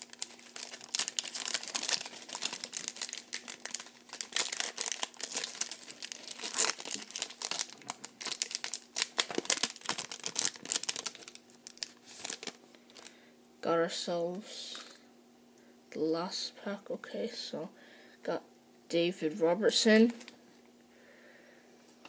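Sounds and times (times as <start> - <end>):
foil wrapper crinkling and tearing: 0.0 - 13.1.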